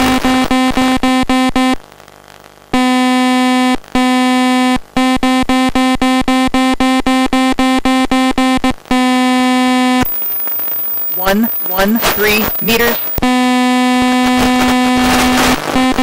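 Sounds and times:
buzzy electronic beeping: 5.4 - 16.0.

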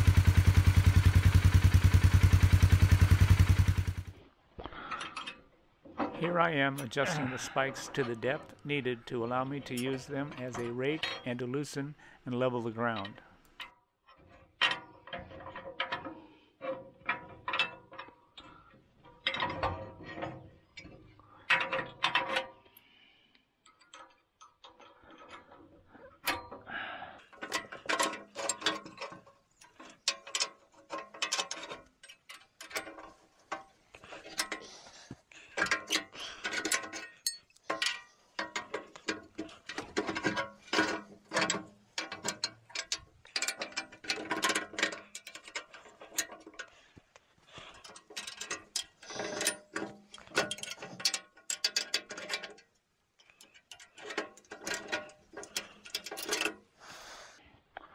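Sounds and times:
steel clinks and scrapes: 4.9 - 11.6, 27.3 - 46.9, 47.5 - 56.7.

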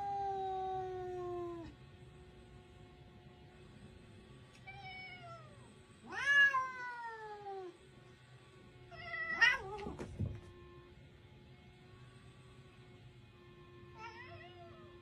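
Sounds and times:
cats yowling: 0.0 - 1.8, 4.6 - 7.8, 8.9 - 10.0, 14.0 - 14.9.

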